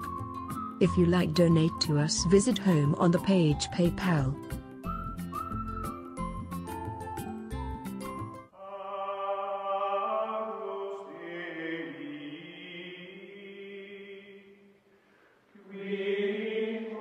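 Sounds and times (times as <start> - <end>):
chanted vocal music: 8.5 - 14.7, 15.5 - 17.0.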